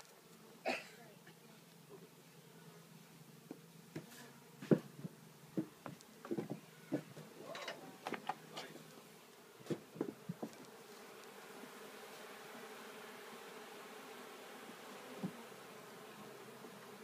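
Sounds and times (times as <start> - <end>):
honeybees buzzing: 0.0 - 17.0
wooden hive frame knocking: 9.6 - 10.6.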